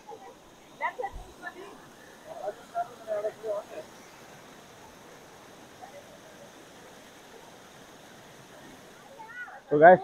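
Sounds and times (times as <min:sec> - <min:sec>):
small waterfall rushing: 0:00.0 - 0:10.0.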